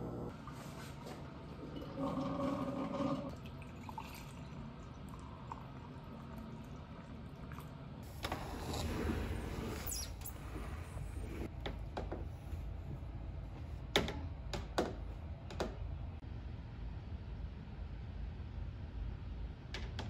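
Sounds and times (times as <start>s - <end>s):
coffee pouring into mug: 1.6s - 7.6s
low rumble of outdoor air: 10.4s - 20.0s.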